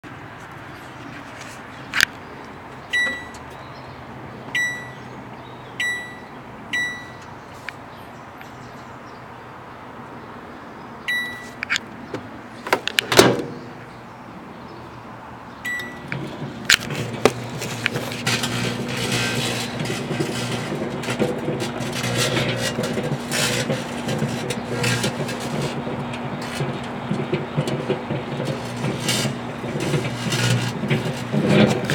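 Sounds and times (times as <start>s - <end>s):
microwave keypad beeping: 2.9s - 3.4s, 4.6s - 5.0s, 5.8s - 7.2s, 11.1s - 11.6s, 15.6s - 16.1s
loud clunk: 12.7s - 13.7s, 15.7s - 31.9s
microwave oven humming: 15.7s - 31.9s.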